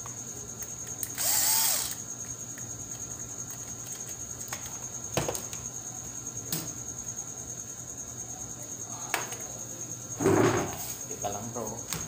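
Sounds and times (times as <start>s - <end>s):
cordless drill burst: 1.1s - 2.0s.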